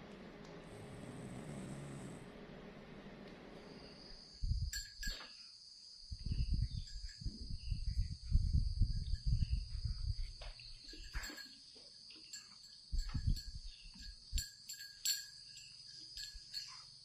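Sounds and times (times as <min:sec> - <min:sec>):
insects droning: 0:00.1 - 0:17.0
low rumbling: 0:00.6 - 0:02.9.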